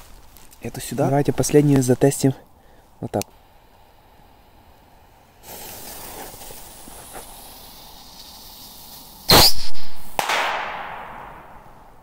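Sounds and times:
falling pitch hiss: 0:02.0 - 0:12.0
firework fuse hissing: 0:02.8 - 0:10.3
firework rocket bursts: 0:03.4 - 0:12.0.

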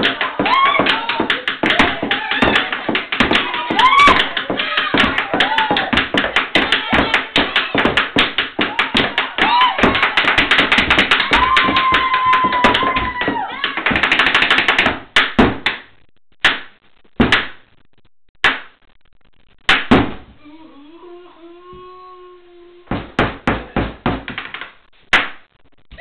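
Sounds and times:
hammers banging on a table: 0:22.9 - 0:24.7.

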